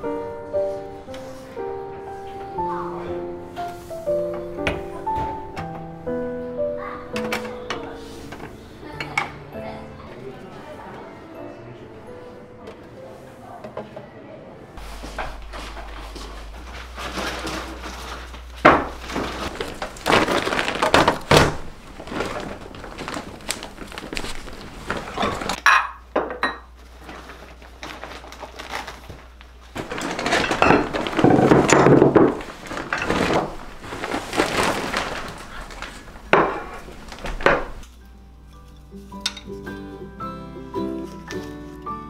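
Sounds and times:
plastic bag rustling: 0:00.0 - 0:06.2, 0:07.5 - 0:08.9, 0:14.8 - 0:25.6, 0:26.7 - 0:38.0
glassware and dishes clinking: 0:25.1 - 0:26.8, 0:30.1 - 0:32.4, 0:38.5 - 0:39.7.

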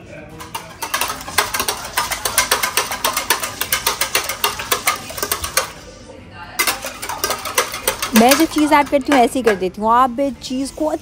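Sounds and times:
whisk clicking against bowl: 0:00.4 - 0:05.8, 0:06.6 - 0:09.8.

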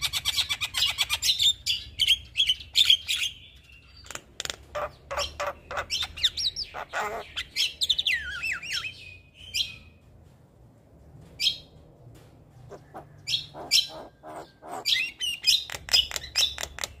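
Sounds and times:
harsh bird chattering calls: 0:00.0 - 0:09.6, 0:12.7 - 0:17.0
bird whistling and warbling: 0:04.8 - 0:09.9, 0:12.8 - 0:17.0.

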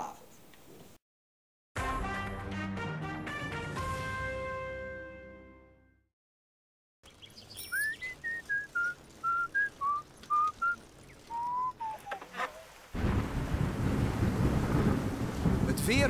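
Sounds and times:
person whistling a tune: 0:07.7 - 0:12.0.

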